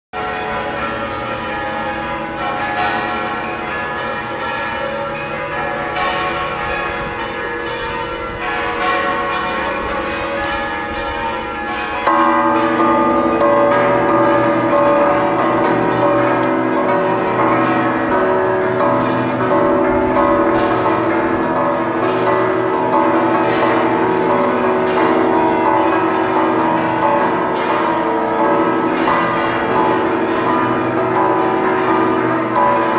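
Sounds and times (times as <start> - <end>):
church bells pealing: 0.2 - 32.9.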